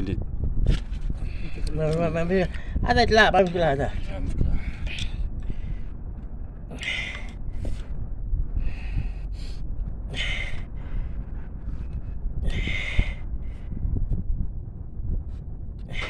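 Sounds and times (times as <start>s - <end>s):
steady low rumble: 0.0s - 16.0s
person breathing heavily: 4.4s - 14.1s, 15.8s - 16.0s.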